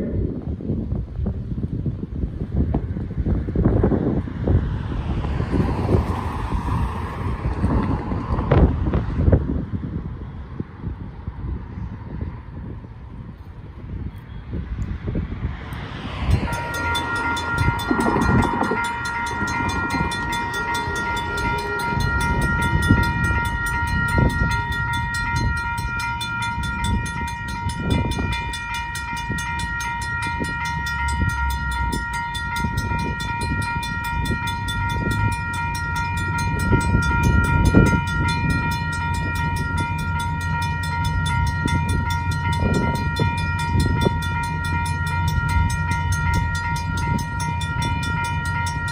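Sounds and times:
railroad crossing bell ringing: 15.6s - 48.9s.

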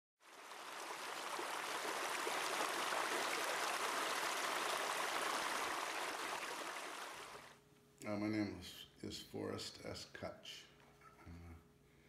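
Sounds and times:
water rushing: 0.2s - 7.6s.

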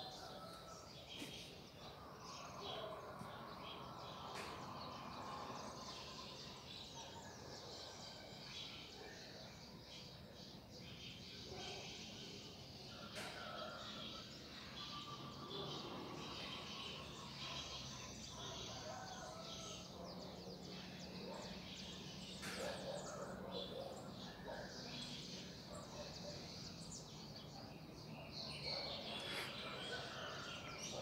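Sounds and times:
small birds chirping: 8.6s - 31.0s.

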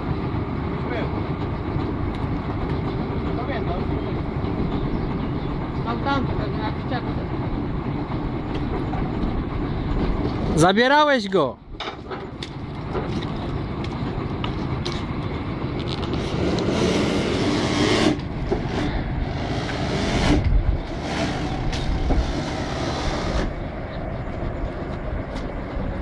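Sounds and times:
drilling rig engine running: 0.0s - 26.0s
loud hissing rushes: 16.2s - 23.8s.

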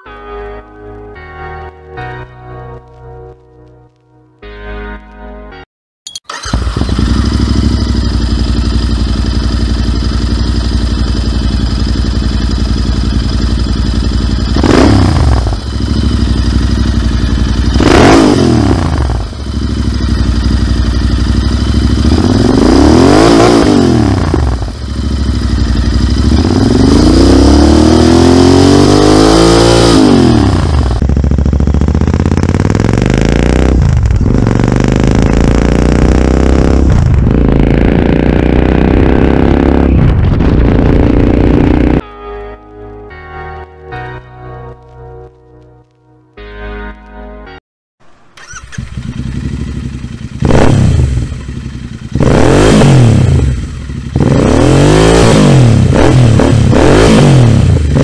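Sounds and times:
motorcycle engine revving: 6.3s - 42.0s, 48.4s - 58.0s.

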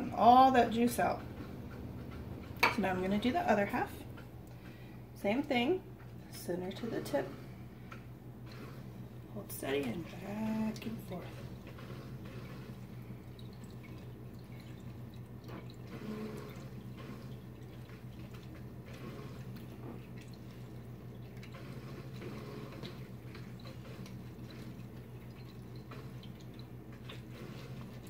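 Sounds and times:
lemon squishing on citrus reamer: 6.0s - 28.0s.

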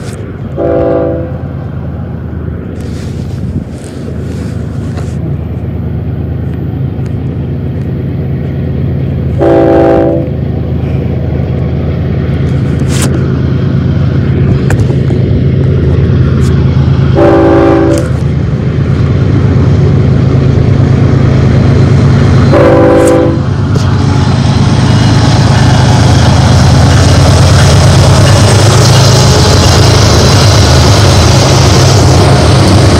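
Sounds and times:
diesel locomotive engines rumbling: 0.0s - 32.9s
rushing noise of train: 0.0s - 32.9s
train air horn blasts: 0.6s - 1.4s, 9.4s - 10.3s, 17.2s - 18.2s, 22.5s - 23.5s.

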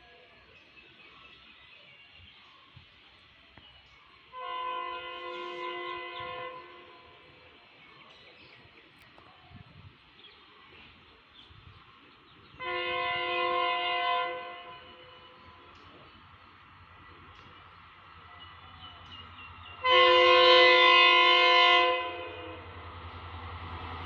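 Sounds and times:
locomotive horn blasts: 4.3s - 7.3s, 12.6s - 15.6s, 19.8s - 22.8s.

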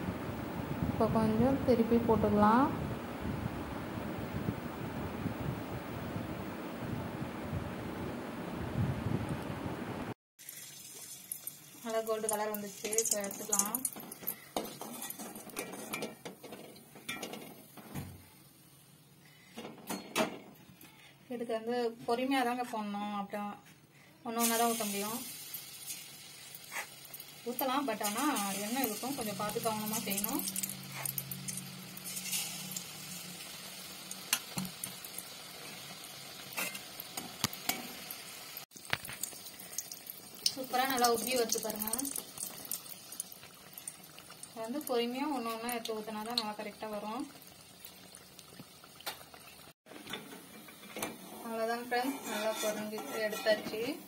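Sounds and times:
hot oil sizzling: 10.4s - 18.8s, 24.3s - 54.0s.

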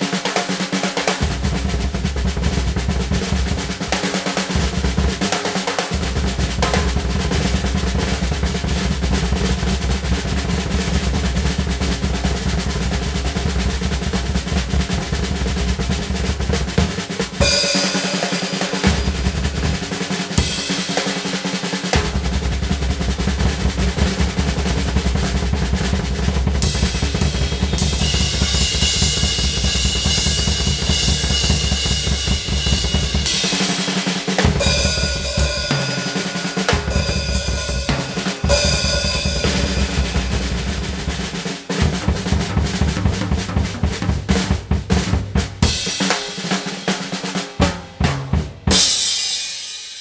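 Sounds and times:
drum solo: 0.0s - 50.0s
ringing cymbal wash: 34.7s - 40.8s.

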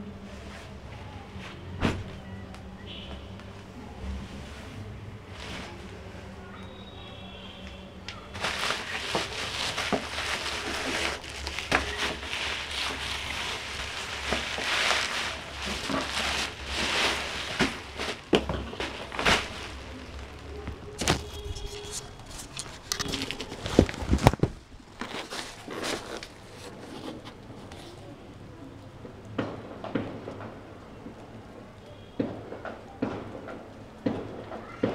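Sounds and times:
bubble wrap crinkling: 0.4s - 7.0s, 7.6s - 28.2s.

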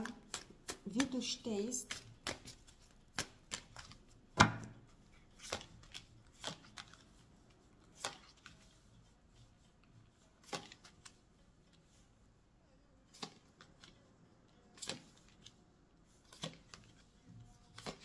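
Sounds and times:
cards shuffled: 0.0s - 7.2s, 7.9s - 8.8s, 10.4s - 11.9s, 13.1s - 14.0s, 14.8s - 15.6s, 16.2s - 17.1s, 17.7s - 18.0s.

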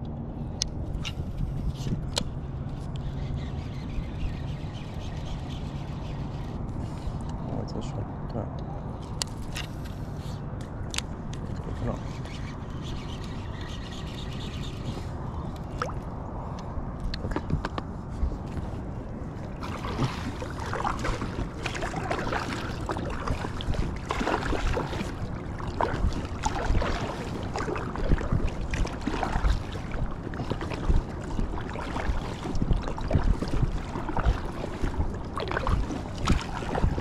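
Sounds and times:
water splashing around a raft: 15.6s - 16.1s, 18.6s - 37.0s.

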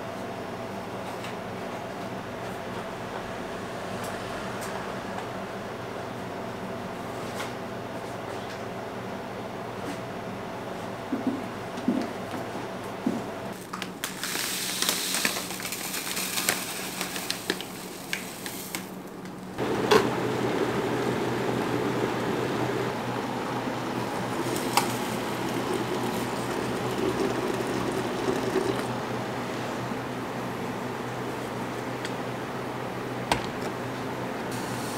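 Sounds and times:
kettle heating water: 19.6s - 33.8s.

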